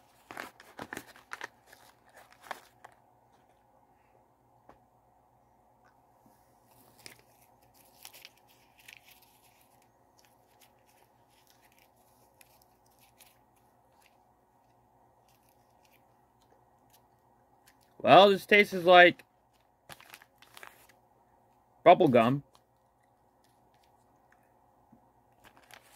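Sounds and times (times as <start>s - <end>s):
pouch crinkling: 0.0s - 3.0s, 6.7s - 17.0s, 19.5s - 21.0s, 25.4s - 25.9s.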